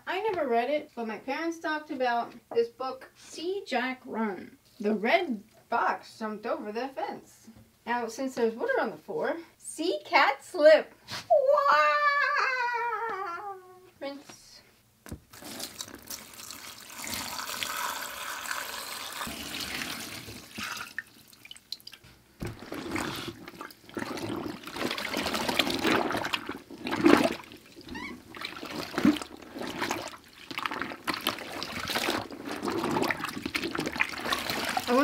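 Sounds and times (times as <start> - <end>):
water pouring into a plastic tub: 15.2 - 35.0
water sloshing and splashing: 19.2 - 35.0.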